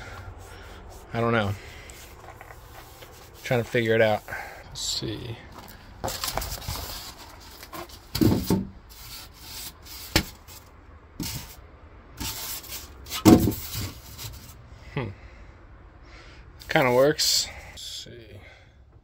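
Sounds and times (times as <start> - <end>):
foam boards scraping together: 6.0 - 11.6, 12.2 - 14.6
knocks and thuds: 8.1 - 8.7, 13.2 - 13.7.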